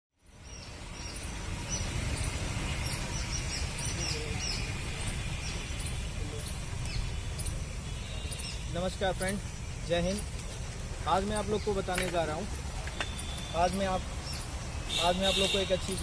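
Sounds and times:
small birds chirping: 0:00.2 - 0:16.0.

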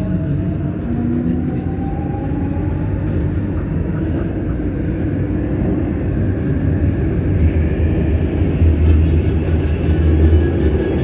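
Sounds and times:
train rumbling in tunnel: 0:00.0 - 0:11.0.

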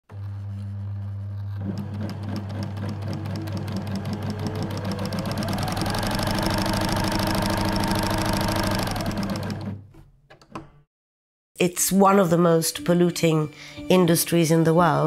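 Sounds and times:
sewing machine running: 0:00.1 - 0:09.9.

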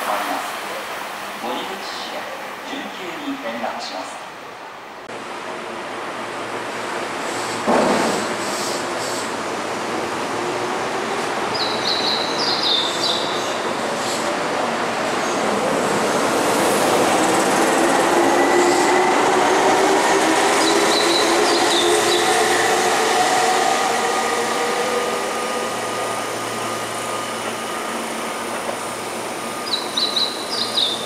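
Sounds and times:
train wheels rushing: 0:13.6 - 0:30.8.

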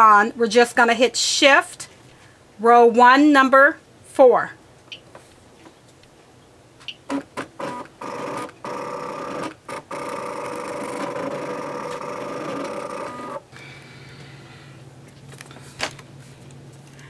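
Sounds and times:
cutting machine motors whirring: 0:07.1 - 0:13.5.

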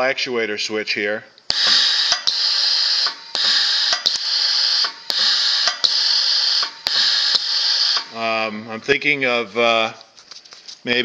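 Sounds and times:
valve switch click: 0:01.4 - 0:08.2
compressed air hissing: 0:01.5 - 0:08.5.

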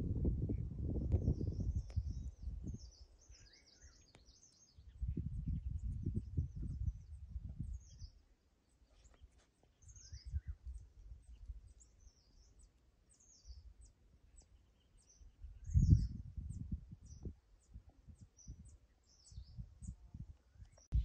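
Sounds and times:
wind buffeting microphone: 0:00.0 - 0:03.6, 0:04.7 - 0:08.2, 0:09.9 - 0:11.8, 0:15.2 - 0:21.0
birds chirping: 0:00.5 - 0:21.0.

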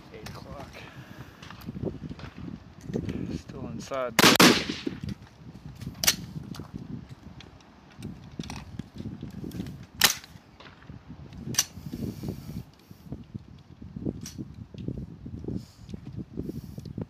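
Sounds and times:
rifle shots: 0:04.2 - 0:05.0.

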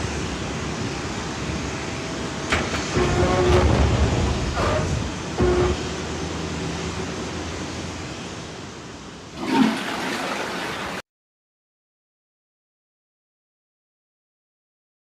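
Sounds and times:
steady rushing noise: 0:00.0 - 0:11.0
sliding door rumbling shut: 0:02.5 - 0:06.5, 0:09.4 - 0:11.0
door squeal: 0:02.6 - 0:05.9.

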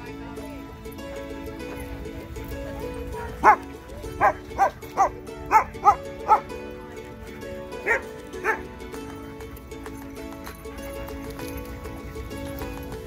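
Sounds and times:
background music with held tones: 0:00.0 - 0:13.0
dog barking: 0:03.2 - 0:03.6, 0:04.2 - 0:06.5, 0:07.8 - 0:08.6.

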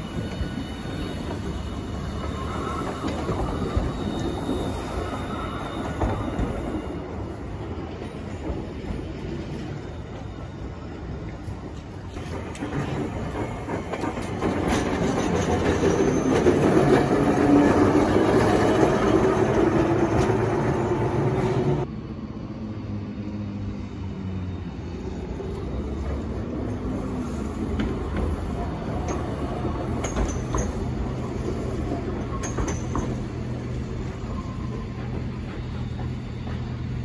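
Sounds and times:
streetcar rumbling on track: 0:00.0 - 0:37.0
tram running: 0:00.0 - 0:37.0.

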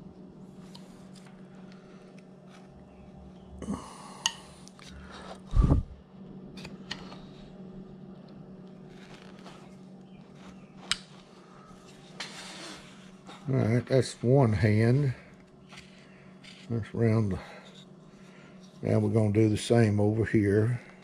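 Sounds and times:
steady low hum: 0:00.0 - 0:21.0
knife scraping wood: 0:11.8 - 0:13.5, 0:15.6 - 0:16.8.

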